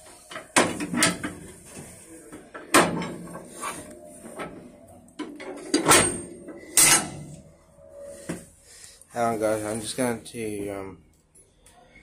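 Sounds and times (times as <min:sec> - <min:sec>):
metallic knocks and clanks: 0:05.2 - 0:07.3.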